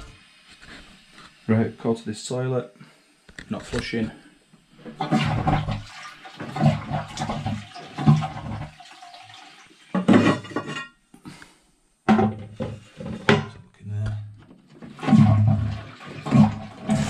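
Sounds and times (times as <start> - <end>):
water gushing and gurgling in toilet: 4.7 - 10.7, 12.2 - 13.5, 14.5 - 17.0
toilet flush lever: 4.8 - 10.8, 14.7 - 17.0
ceramic cistern lid clatter: 10.0 - 11.0.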